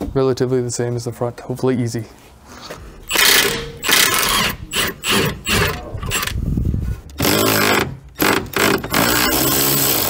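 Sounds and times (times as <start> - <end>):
hand ratchet rattling: 3.1 - 6.4
impact wrench rasping bursts: 3.1 - 6.4, 7.2 - 10.0.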